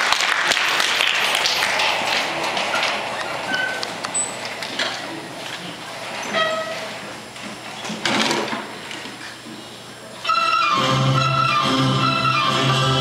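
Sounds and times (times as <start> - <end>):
audience applause: 0.0 - 5.9.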